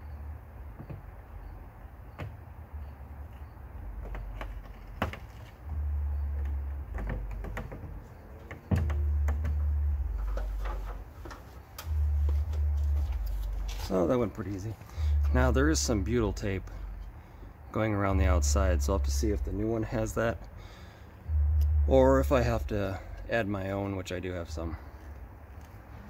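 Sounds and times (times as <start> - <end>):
low rumble: 5.7 - 11.2, 11.8 - 23.6
plastic window pane clicking and knocking: 6.4 - 9.6.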